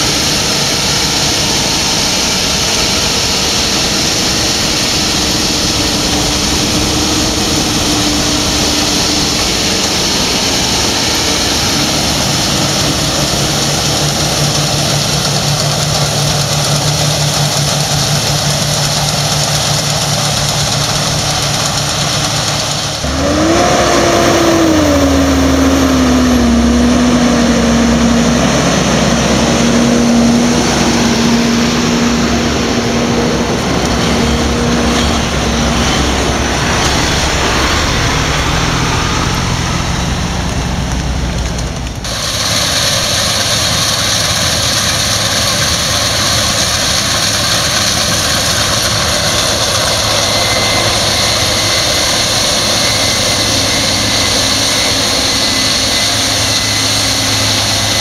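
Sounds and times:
combine harvester drone with whine: 0.0 - 58.0
heavy diesel engines running: 0.0 - 58.0.

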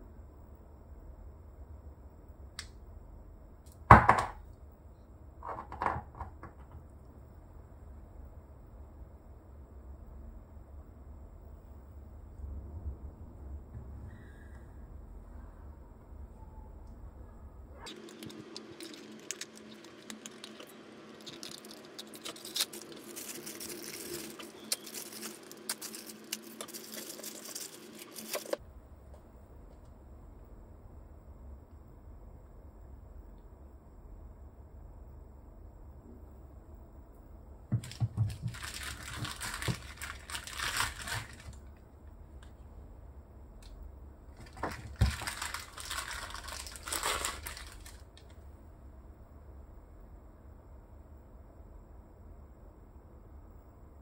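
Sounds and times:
plastic packaging crinkling: 17.8 - 28.6, 37.8 - 41.7, 44.4 - 48.3.

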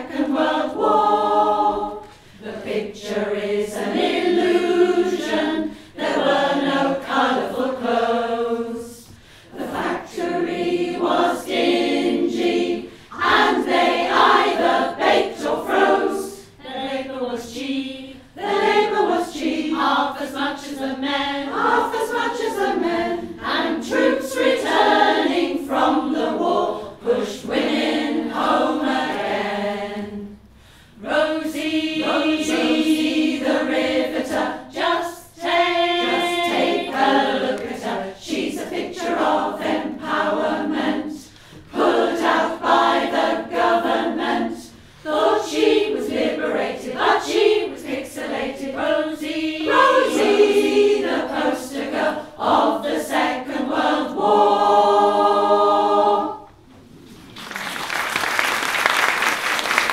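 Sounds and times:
women's choir singing unaccompanied: 0.0 - 56.8.

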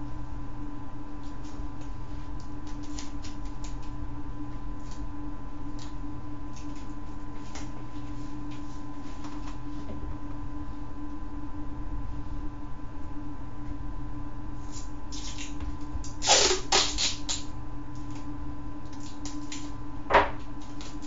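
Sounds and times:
steady low hum: 0.0 - 21.0
paper and tape crackling: 1.2 - 4.0, 14.7 - 17.5.

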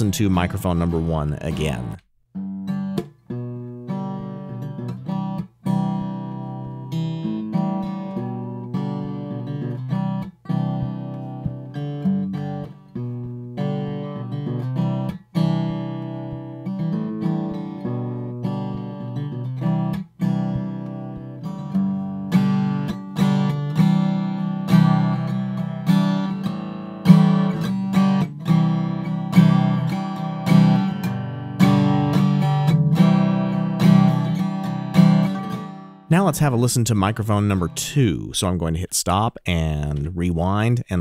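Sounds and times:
acoustic guitar strumming chords: 0.0 - 41.0.

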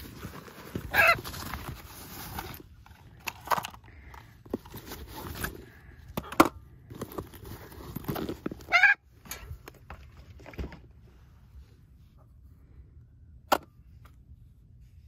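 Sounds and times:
bag and gear rustling and clicking: 0.0 - 3.7.

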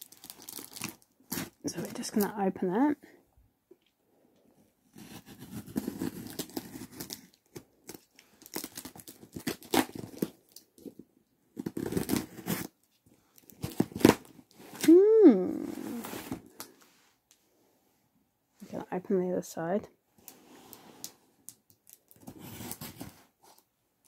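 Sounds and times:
packing tape ripping off cardboard: 0.0 - 1.6, 5.0 - 11.0, 11.6 - 12.8, 13.4 - 15.0, 21.8 - 23.2.

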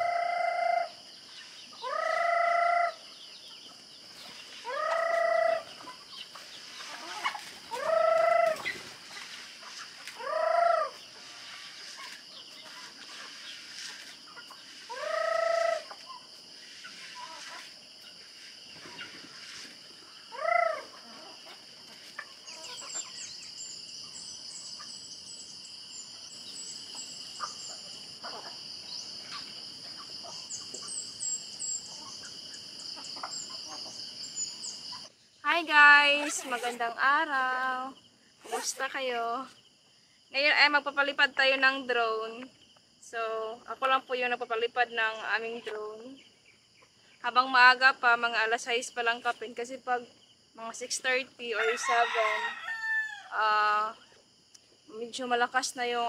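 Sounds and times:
chickens calling loudly: 0.0 - 35.2, 51.5 - 54.0
high insect buzz: 0.0 - 40.7
chickens pecking and scratching: 3.6 - 20.2, 20.9 - 23.2.

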